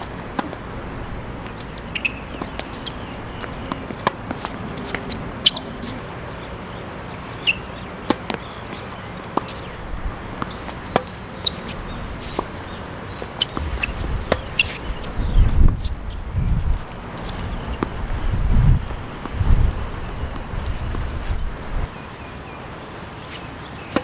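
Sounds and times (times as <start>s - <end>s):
racket hitting tennis ball: 0.0s - 0.7s, 8.0s - 15.9s
tennis ball bouncing: 0.0s - 0.7s, 1.3s - 5.9s, 7.5s - 15.9s
wind rumble on microphone: 9.8s - 10.3s, 11.7s - 12.3s, 13.6s - 21.9s.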